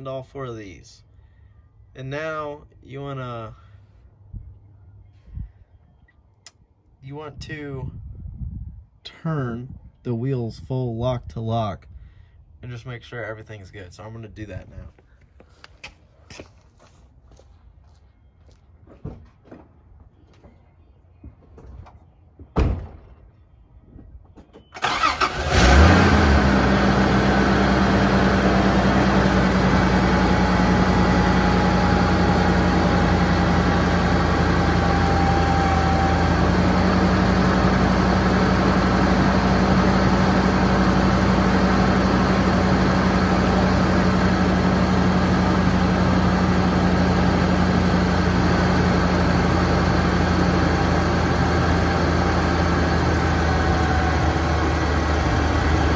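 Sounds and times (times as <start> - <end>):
thump: 22.5 - 23.2
car engine cranking and idling: 24.8 - 55.9.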